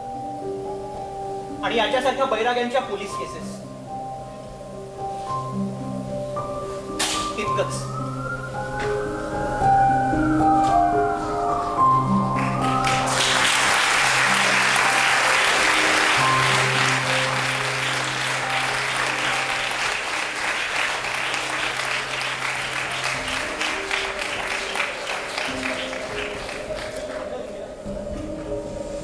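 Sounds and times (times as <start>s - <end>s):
background music with low note: 0.0s - 29.0s
audience applauding: 12.1s - 27.6s.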